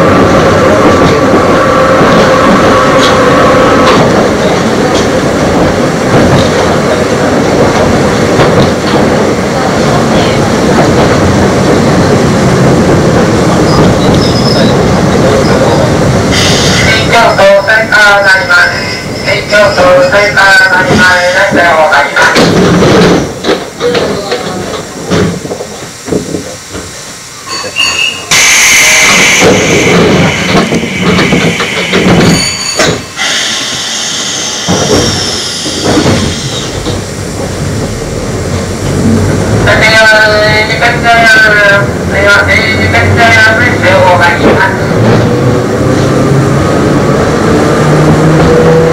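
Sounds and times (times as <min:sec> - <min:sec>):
train running noise inside car: 0:00.0 - 0:48.9
high wheel squeals: 0:13.6 - 0:17.6, 0:27.4 - 0:29.2, 0:31.7 - 0:36.8.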